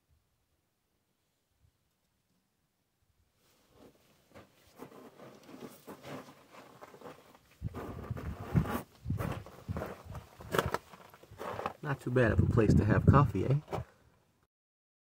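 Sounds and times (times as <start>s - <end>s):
clothing and gear rustling: 3.4s - 11.8s
footsteps on gravelly rock: 3.8s - 12.1s.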